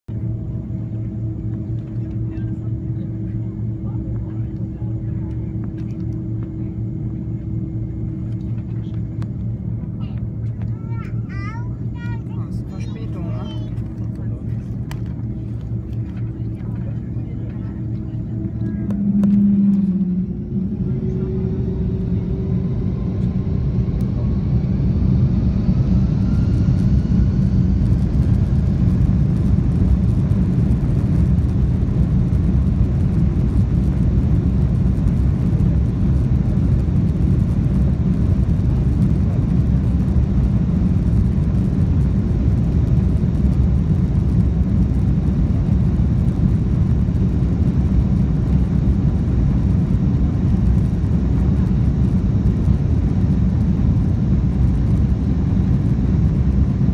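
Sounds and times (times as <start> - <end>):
jet engine rumble: 0.1 - 56.9
jet engines whining: 0.1 - 56.9.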